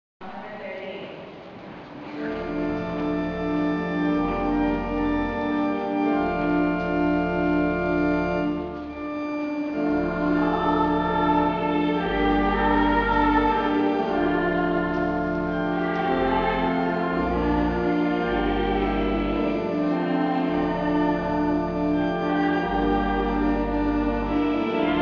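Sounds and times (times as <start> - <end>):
church organ sustained chords: 2.2 - 25.0.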